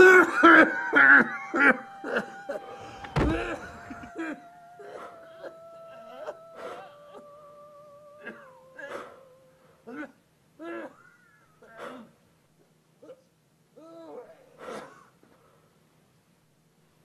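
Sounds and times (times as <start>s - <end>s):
man sobbing and wailing: 0.0s - 12.1s, 13.0s - 14.6s
low thump: 2.9s - 4.1s.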